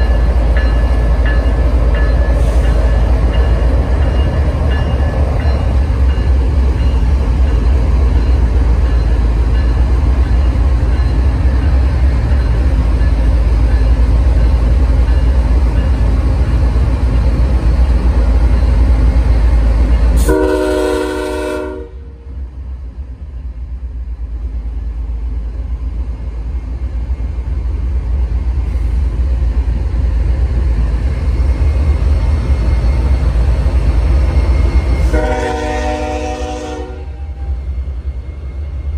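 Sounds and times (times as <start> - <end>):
diesel locomotives rumbling past: 0.0 - 38.9
train horn blast: 20.2 - 22.2, 35.0 - 37.5.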